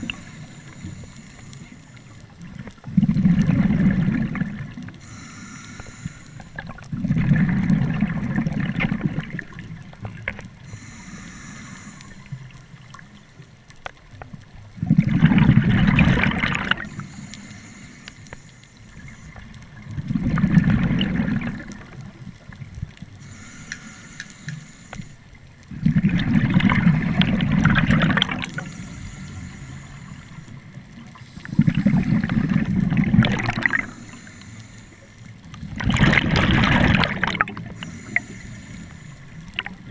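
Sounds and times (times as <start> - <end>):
regulator hissing inhalations: 0.0 - 2.2, 5.0 - 6.6, 10.6 - 12.5, 16.9 - 19.5, 23.2 - 25.2, 28.5 - 30.6, 33.8 - 35.2, 37.7 - 39.4
bubbling exhaled air underwater: 2.4 - 13.0, 14.7 - 17.2, 18.9 - 24.5, 25.7 - 34.4, 35.4 - 39.9.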